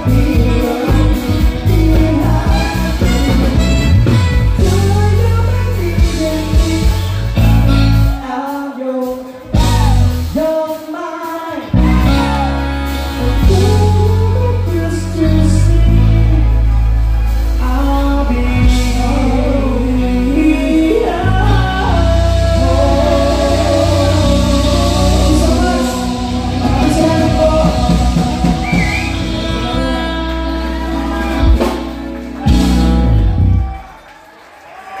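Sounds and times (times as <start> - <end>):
electric bass: 0.0 - 8.2, 9.5 - 10.4, 11.6 - 33.8
saxophone: 0.0 - 8.3, 18.7 - 33.7
person singing: 0.0 - 33.7
live band playing: 0.0 - 34.1.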